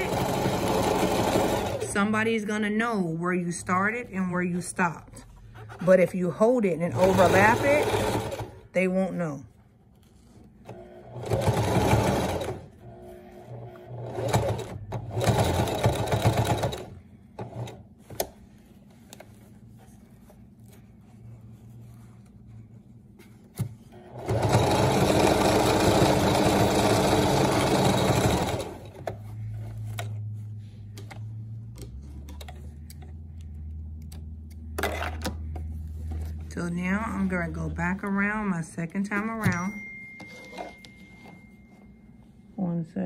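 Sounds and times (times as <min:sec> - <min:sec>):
electric sewing machine stitching: 0:00.0 - 0:02.1, 0:06.9 - 0:08.6, 0:10.6 - 0:17.8, 0:23.9 - 0:29.2.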